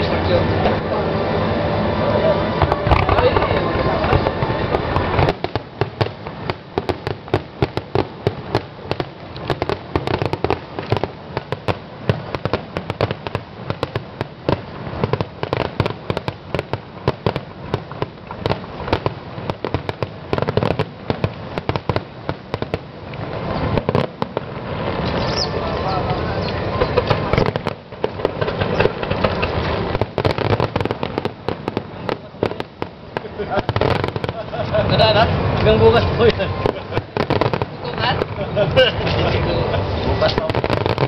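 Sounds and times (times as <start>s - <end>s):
fireworks bangs and pops: 2.6s - 41.0s.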